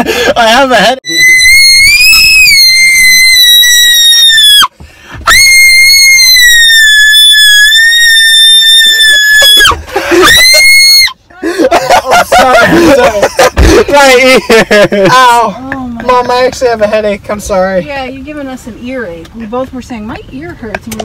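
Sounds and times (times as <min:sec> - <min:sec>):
person screaming high-pitched: 0:01.0 - 0:04.7, 0:05.3 - 0:11.1.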